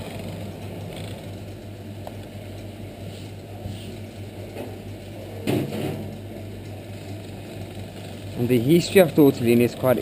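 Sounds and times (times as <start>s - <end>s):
pasta machine clatter: 0.0s - 1.6s, 4.1s - 10.0s
pasta machine rolling dough: 0.0s - 10.0s.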